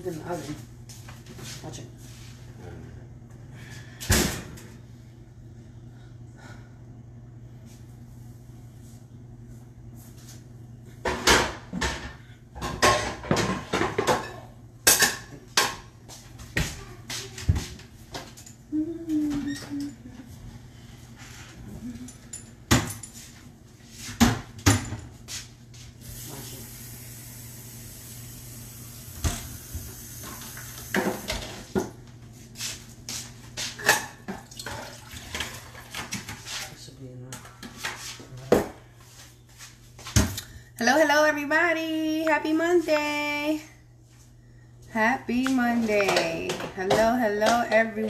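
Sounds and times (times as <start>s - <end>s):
low steady hum: 0.0s - 48.0s
pots and pans clanking: 11.1s - 15.8s.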